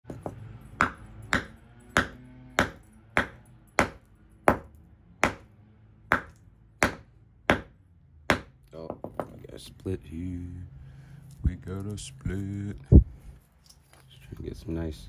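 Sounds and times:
hammer striking rock: 0.1 - 5.5, 6.1 - 7.7, 8.3 - 9.3.

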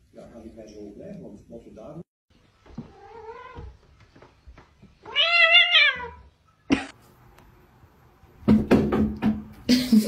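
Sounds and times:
cat meowing: 2.9 - 3.8, 5.0 - 6.3.

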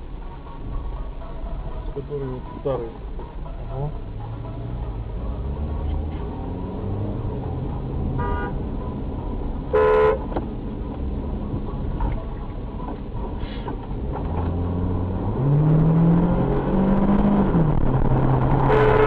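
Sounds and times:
car engine running and revving: 0.0 - 19.0
car horn toot: 8.2 - 8.6, 9.7 - 10.3, 18.6 - 19.0.

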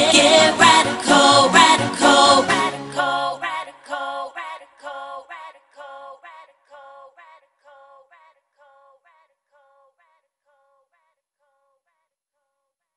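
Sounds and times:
pop song: 0.0 - 10.3.

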